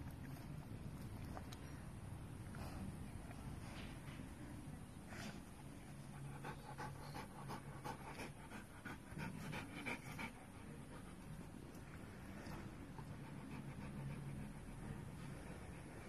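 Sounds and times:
dog panting: 5.2 - 16.0.

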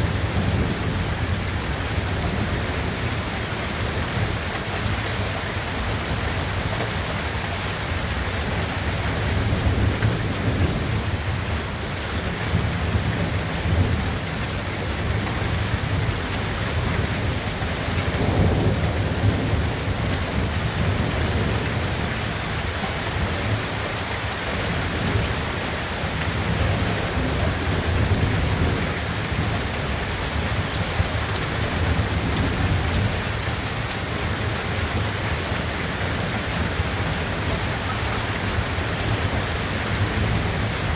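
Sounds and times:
low rolling thunder: 0.0 - 3.2, 9.2 - 14.2, 16.8 - 22.5, 26.3 - 33.6
heavy rain falling: 0.0 - 40.9.

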